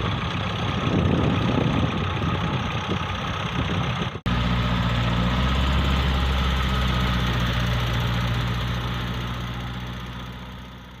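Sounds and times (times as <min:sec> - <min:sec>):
tractor diesel engine running: 0:00.0 - 0:11.0.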